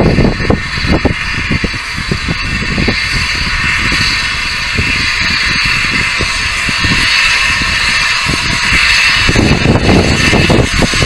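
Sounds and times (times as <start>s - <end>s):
steam locomotive hissing: 0.0s - 11.0s
wind on microphone: 0.0s - 11.0s.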